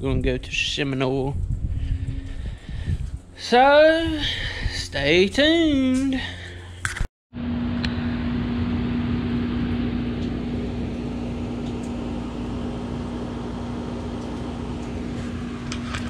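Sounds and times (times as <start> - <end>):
machine humming: 7.4 - 16.0.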